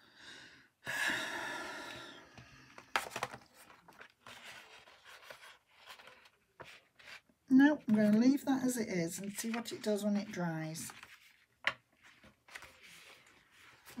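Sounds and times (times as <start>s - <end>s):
paper crackling and rustling: 2.9s - 8.4s, 9.0s - 14.0s.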